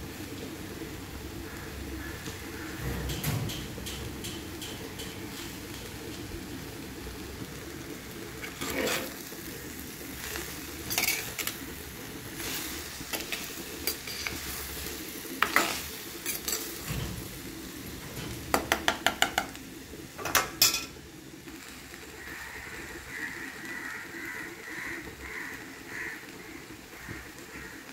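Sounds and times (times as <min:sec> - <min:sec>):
faint frying sizzle: 0:00.0 - 0:27.9
metal spoon scraping clay pot: 0:08.4 - 0:09.2.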